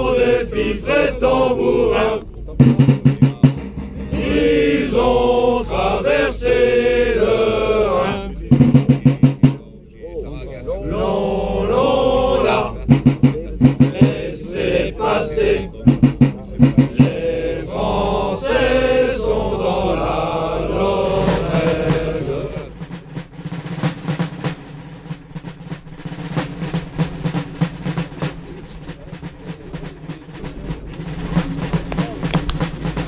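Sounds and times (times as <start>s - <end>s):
men singing a chant-like song: 0.0s - 9.6s, 10.6s - 22.9s
steady low tone: 1.1s - 22.8s
regular drum beats: 2.4s - 6.2s, 7.8s - 9.7s, 12.4s - 18.8s, 20.7s - 33.0s
rapid drum taps: 2.6s - 5.0s, 8.5s - 9.7s, 12.8s - 14.4s, 15.8s - 17.2s, 21.2s - 33.0s.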